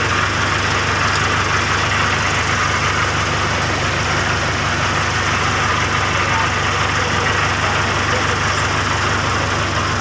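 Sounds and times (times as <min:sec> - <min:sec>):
heavy equipment engine idling: 0:00.0 - 0:10.0.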